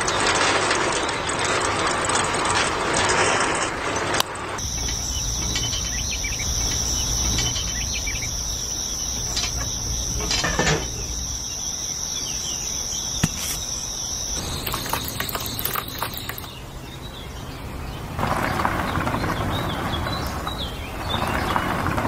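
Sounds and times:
low hum: 4.6s - 20.5s.

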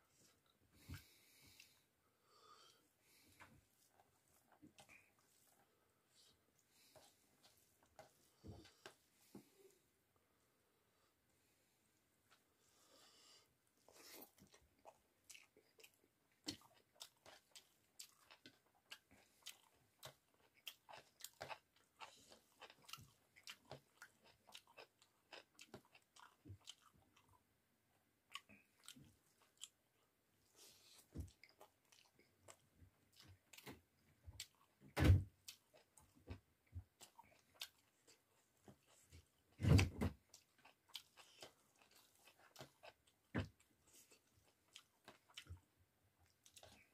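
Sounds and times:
person chewing and mouth sounds: 3.1s - 9.7s, 13.8s - 27.5s, 28.2s - 46.9s.

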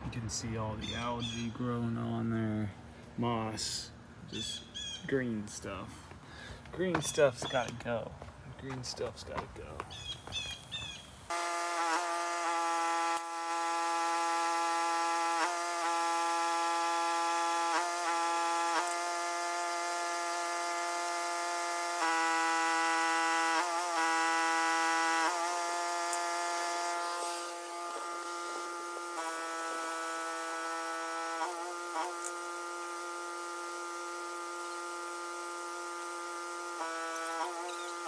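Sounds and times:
pressure washer running: 11.2s - 38.0s.

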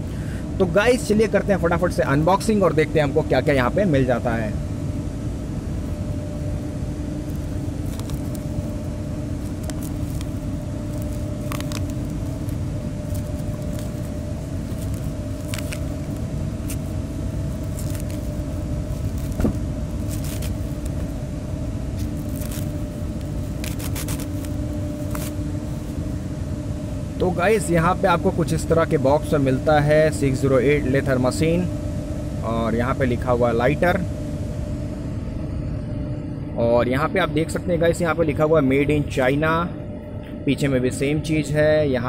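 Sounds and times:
steady low hum: 0.0s - 42.0s
plastic wrap crackling and rustling: 7.2s - 21.2s, 21.9s - 26.0s.

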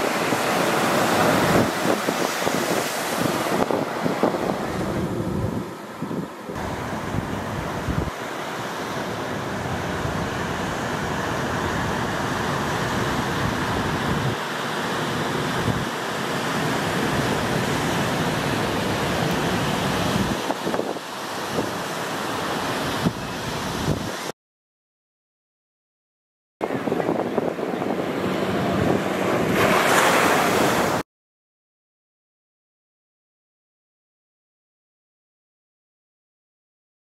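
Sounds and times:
wind buffeting microphone: 0.0s - 8.3s, 9.3s - 14.4s, 15.4s - 16.0s, 16.9s - 21.9s, 22.6s - 24.3s, 26.6s - 31.0s
surf washing: 0.0s - 24.3s, 26.6s - 31.0s.

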